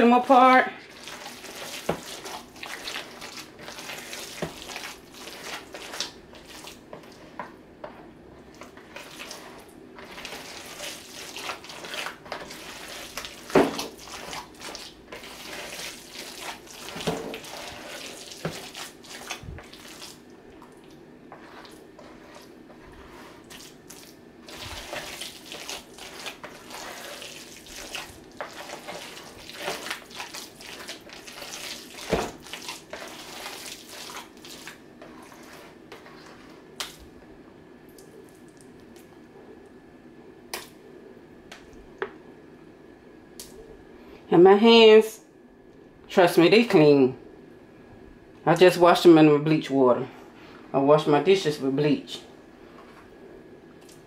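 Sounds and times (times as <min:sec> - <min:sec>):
wet squelching and slapping: 0:00.9 - 0:06.8, 0:08.5 - 0:21.0, 0:23.4 - 0:35.6, 0:36.8 - 0:37.0, 0:53.8 - 0:54.0.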